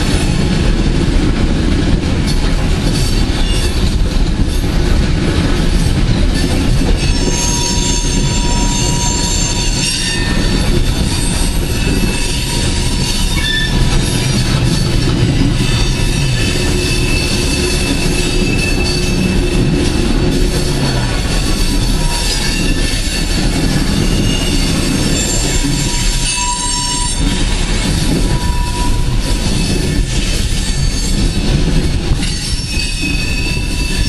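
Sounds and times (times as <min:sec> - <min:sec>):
train wheels rumbling on rail: 0:00.0 - 0:34.0
high wheel squeals: 0:07.0 - 0:27.5, 0:28.1 - 0:31.3, 0:32.2 - 0:34.0.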